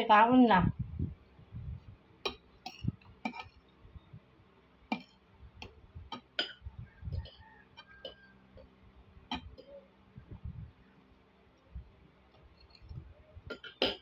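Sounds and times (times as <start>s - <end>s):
cutlery clinking on ceramic plate: 13.5s - 14.0s.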